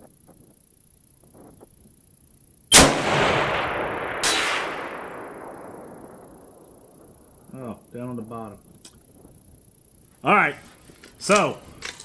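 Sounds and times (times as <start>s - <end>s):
rolling echo of gunshot: 2.7s - 7.1s
rifle shot crack: 2.7s - 7.2s.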